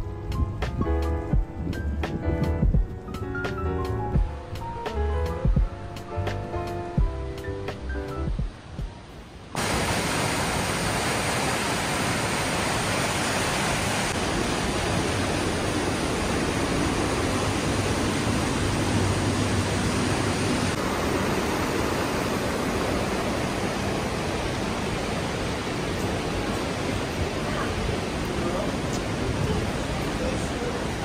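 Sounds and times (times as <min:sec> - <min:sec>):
water rushing at water wheel: 0:08.5 - 0:31.0.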